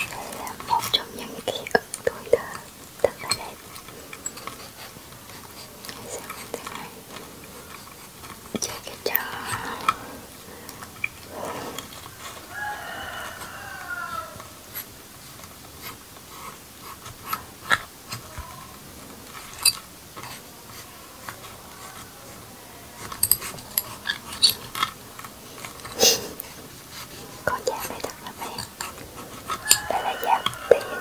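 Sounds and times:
rooster crowing: 0:12.0 - 0:14.8, 0:29.5 - 0:31.0.

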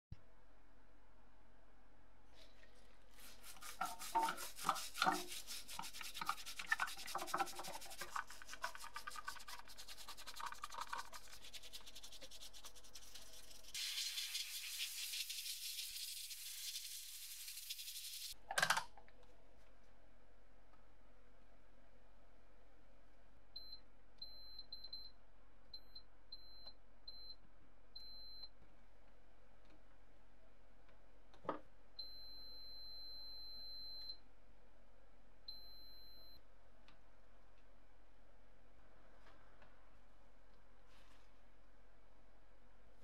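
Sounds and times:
liquid sloshing: 0:02.4 - 0:11.8
toothbrush scrubbing: 0:03.1 - 0:18.4.

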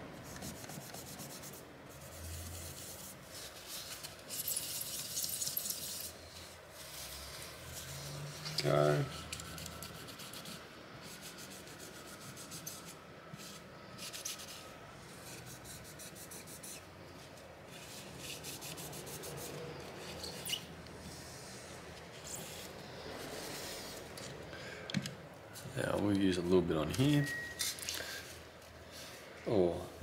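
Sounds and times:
cloth rubbing scratchy wiping: 0:00.2 - 0:24.1.

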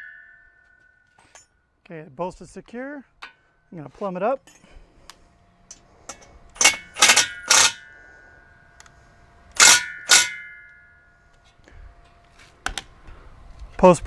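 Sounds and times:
metallic strikes on gate post: 0:00.0 - 0:01.5, 0:05.7 - 0:08.0, 0:09.6 - 0:11.1.

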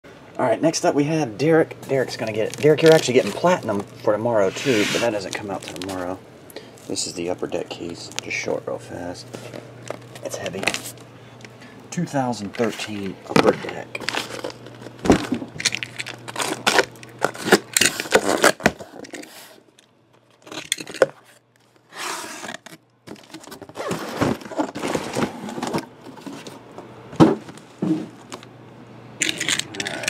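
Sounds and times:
cardboard rustling: 0:01.9 - 0:06.2, 0:21.2 - 0:28.4
packing tape ripping: 0:02.2 - 0:03.9, 0:04.7 - 0:06.0, 0:14.0 - 0:19.5, 0:29.2 - 0:30.0
cardboard scraping: 0:02.2 - 0:06.1, 0:21.2 - 0:26.7.

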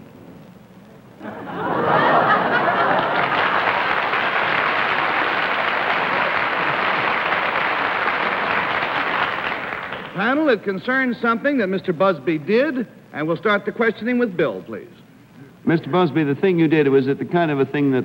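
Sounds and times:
audience laughing: 0:01.2 - 0:09.4
audience applause: 0:01.4 - 0:10.2.

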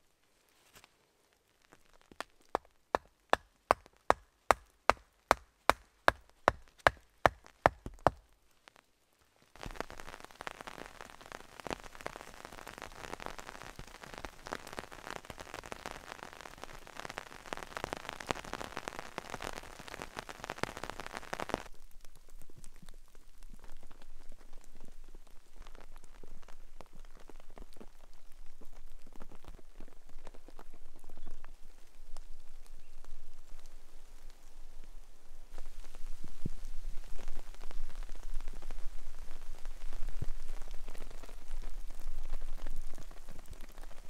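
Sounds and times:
steady rain: 0:00.0 - 0:44.0
wooden stake hammered into ground: 0:02.5 - 0:08.2.

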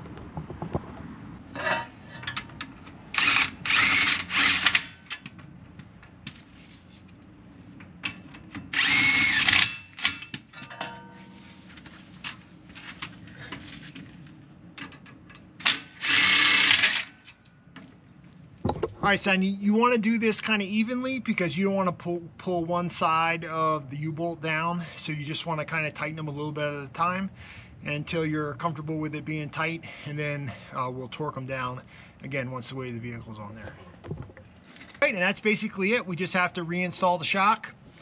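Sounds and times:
impact wrench bursts: 0:03.1 - 0:05.2, 0:08.6 - 0:10.3, 0:15.6 - 0:17.1.

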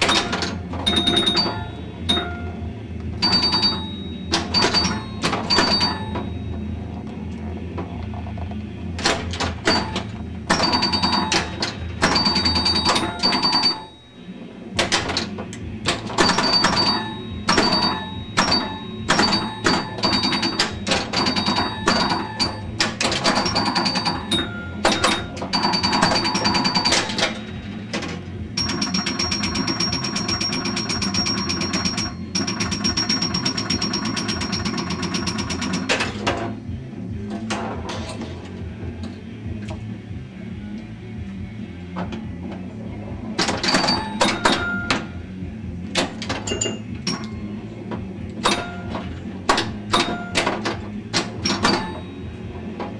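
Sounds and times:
pinball bumpers clacking: 0:00.0 - 0:02.6, 0:03.2 - 0:06.7, 0:09.0 - 0:14.0, 0:14.8 - 0:36.6, 0:43.4 - 0:45.2, 0:45.9 - 0:52.9.

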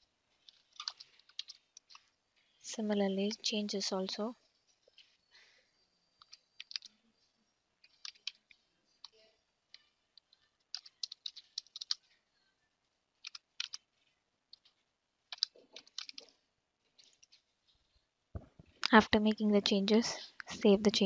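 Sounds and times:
computer keyboard typing: 0:00.4 - 0:02.1, 0:06.2 - 0:06.9, 0:07.8 - 0:12.1, 0:13.2 - 0:13.9, 0:14.6 - 0:16.3.

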